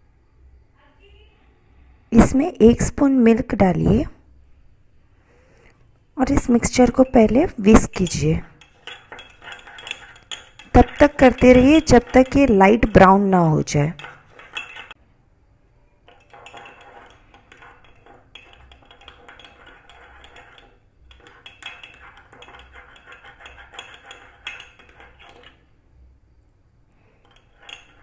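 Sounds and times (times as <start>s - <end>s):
metal spoon clinking in ceramic mug: 8.6s - 13.0s, 13.9s - 15.0s, 16.0s - 25.7s, 27.2s - 28.0s.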